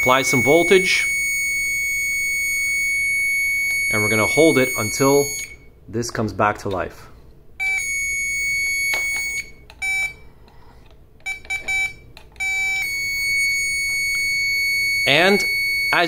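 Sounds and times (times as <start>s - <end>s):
high electronic beeps: 0.0s - 5.7s, 11.3s - 16.0s.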